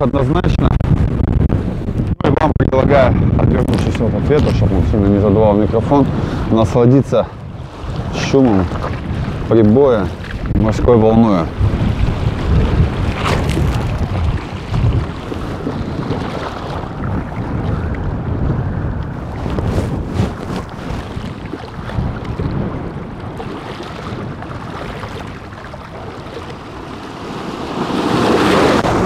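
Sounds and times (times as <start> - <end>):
wind buffeting microphone: 0.0 - 29.0
waves washing over pebbles: 7.8 - 17.6, 19.3 - 29.0.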